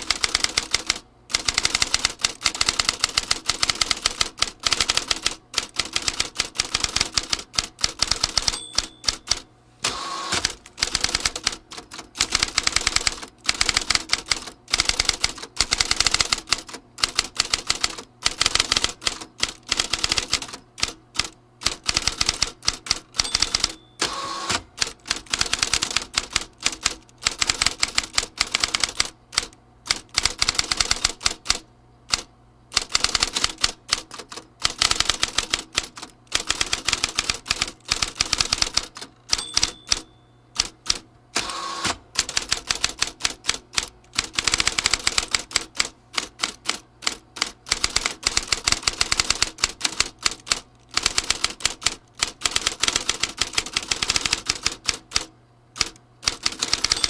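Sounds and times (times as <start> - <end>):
typewriter key strikes: 0.0 - 9.5, 21.6 - 31.5, 32.8 - 41.0, 42.2 - 57.0.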